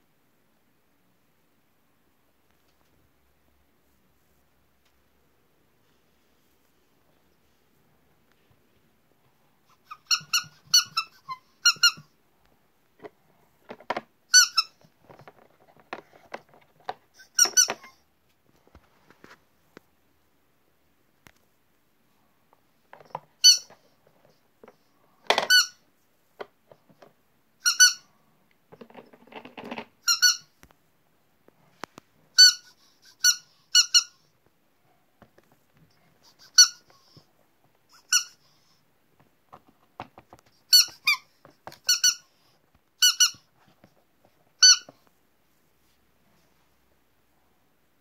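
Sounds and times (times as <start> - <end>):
squeaky toy squeaks: 9.7 - 12.1, 14.3 - 14.9, 17.1 - 18.0, 23.4 - 23.9, 25.3 - 25.8, 27.6 - 28.1, 30.0 - 30.5, 32.3 - 34.3, 36.2 - 37.2, 37.9 - 38.8, 40.7 - 42.4, 43.0 - 43.5, 44.6 - 45.0
toy scraping and rattling on plastic: 13.0 - 18.0, 28.7 - 30.4.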